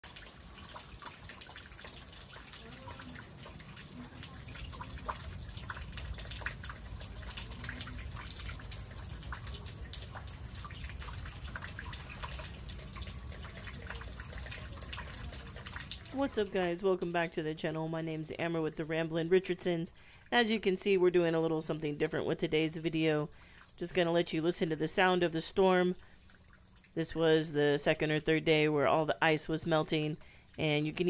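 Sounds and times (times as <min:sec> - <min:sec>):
meltwater dripping and splattering: 0:00.0 - 0:17.2.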